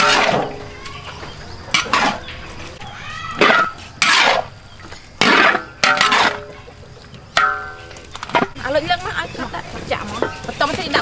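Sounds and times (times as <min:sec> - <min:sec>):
metal spatula scraping a wok: 0:03.4 - 0:04.6.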